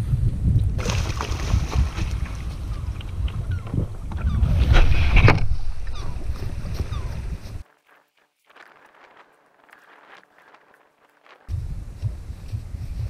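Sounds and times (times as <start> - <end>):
wind buffeting microphone: 0.0 - 7.7, 10.4 - 13.0
kayak hull scraping on sand: 1.2 - 11.5.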